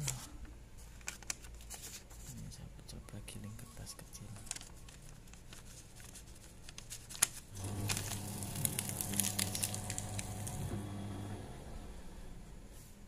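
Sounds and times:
cutters crackling through paper: 4.2s - 10.8s
shredder motor humming: 7.6s - 12.2s.

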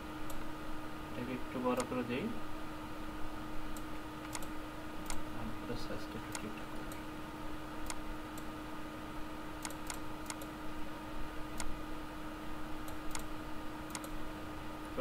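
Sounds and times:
electrical hum: 0.0s - 15.0s
computer mouse clicks: 3.8s - 5.2s, 6.3s - 7.0s, 9.6s - 10.5s, 12.9s - 13.3s, 13.9s - 14.2s.

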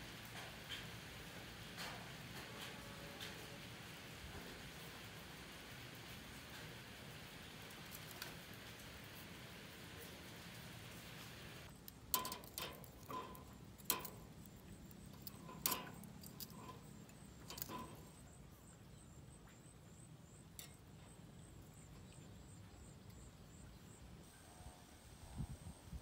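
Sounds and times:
sharp clicks and clinks: 11.6s - 18.3s.

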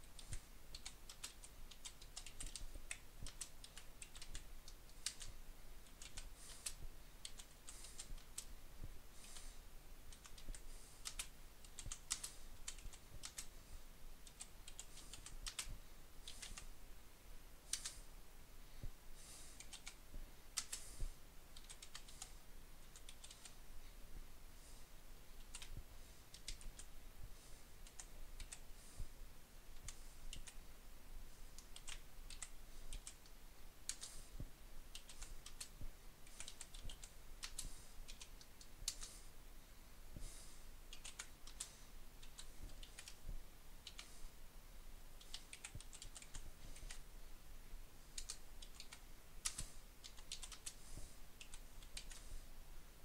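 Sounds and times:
computer keyboard typing: 0.1s - 8.5s, 10.1s - 13.5s, 14.2s - 16.7s, 17.7s - 18.0s, 19.6s - 20.0s, 20.6s - 21.0s, 21.6s - 23.6s, 25.4s - 26.9s, 31.6s - 33.3s, 33.9s - 34.3s, 34.9s - 39.2s, 40.9s - 43.2s, 43.8s - 44.2s, 45.2s - 47.0s, 48.2s - 52.3s.

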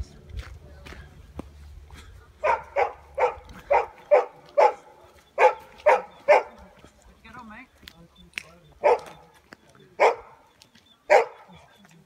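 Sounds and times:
dog barking: 2.4s - 6.8s, 8.8s - 9.4s, 10.0s - 11.7s.

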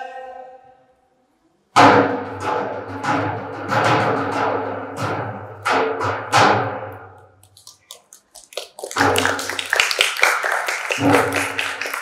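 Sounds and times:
drum beat ringing out: 1.8s - 7.0s, 8.9s - 9.8s, 10.8s - 12.0s
audience applause: 7.7s - 12.0s.

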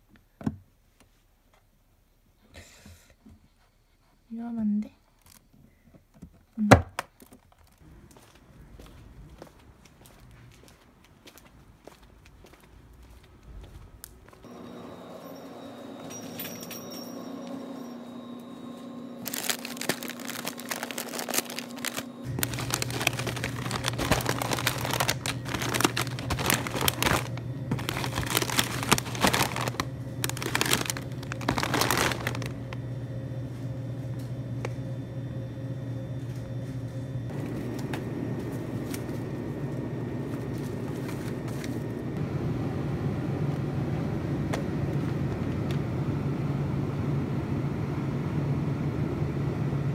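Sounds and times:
low hum of refrigerators: 0.0s - 49.9s
plastic bags crinkling: 19.2s - 32.8s, 40.3s - 42.0s.

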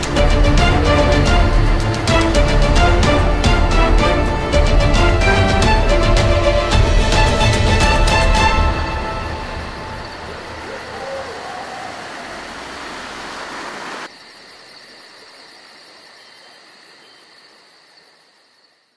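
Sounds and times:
night insects droning: 0.0s - 18.9s
surf washing up on beach: 10.2s - 14.1s.

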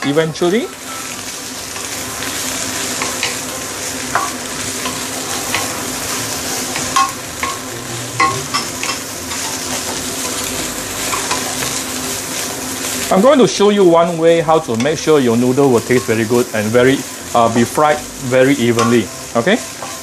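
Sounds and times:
vegetables sizzling in a pan: 0.0s - 20.0s.

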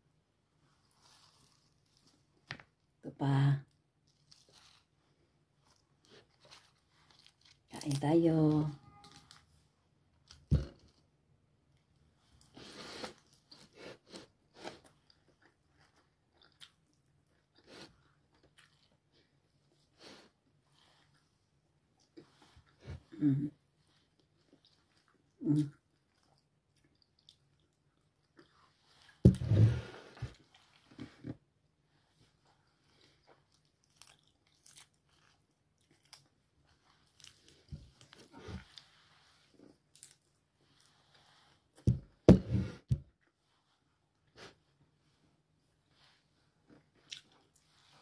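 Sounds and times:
person chewing food: 12.4s - 31.3s, 32.1s - 41.6s, 46.6s - 48.0s.

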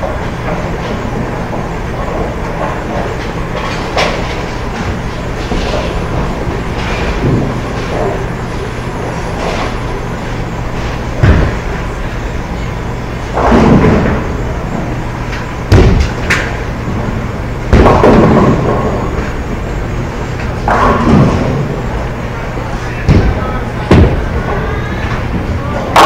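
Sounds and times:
low rumble of bowling lanes: 0.0s - 26.0s
bowling balls crashing into pins: 10.8s - 12.0s, 13.1s - 19.5s, 20.4s - 22.0s, 23.0s - 26.0s.

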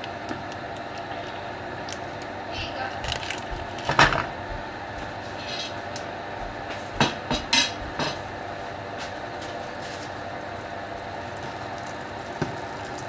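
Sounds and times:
butter sizzling in a frying pan: 10.0s - 13.0s.

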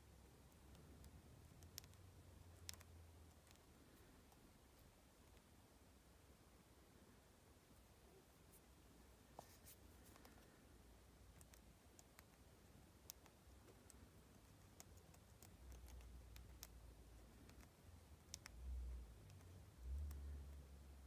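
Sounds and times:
metal pin ticking and scratching: 13.0s - 18.6s.

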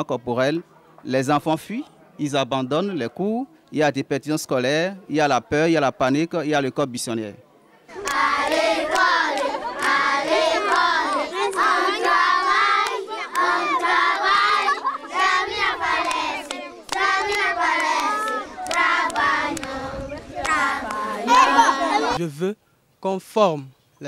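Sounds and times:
children chanting in unison: 7.9s - 22.2s
hand clapping: 8.0s - 10.0s, 10.6s - 13.5s, 16.0s - 19.7s.

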